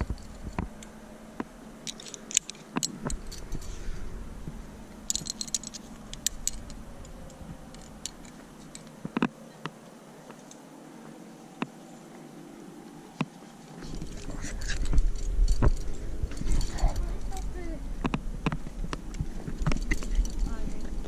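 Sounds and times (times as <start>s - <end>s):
climbing gear clicking and jangling: 1.8s - 3.8s, 5.0s - 9.0s, 13.4s - 17.6s, 18.6s - 21.0s.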